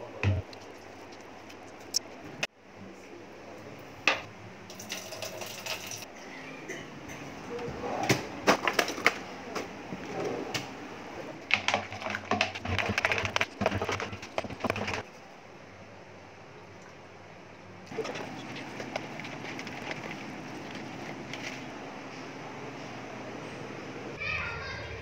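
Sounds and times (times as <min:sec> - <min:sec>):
foamy mix stirred in plastic mug: 0:11.5 - 0:15.1, 0:17.9 - 0:21.7.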